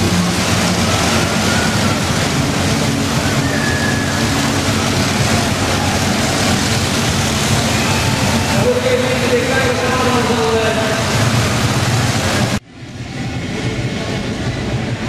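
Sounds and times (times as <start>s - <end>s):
loud rushing noise: 0.0s - 15.0s
truck diesel engine running: 0.0s - 15.0s.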